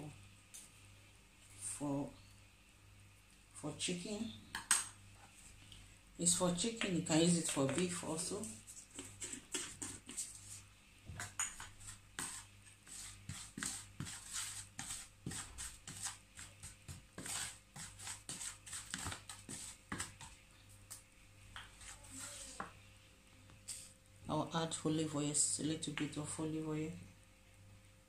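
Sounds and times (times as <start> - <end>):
spoons tapping and scraping bowl: 6.6 - 10.6, 11.2 - 20.4.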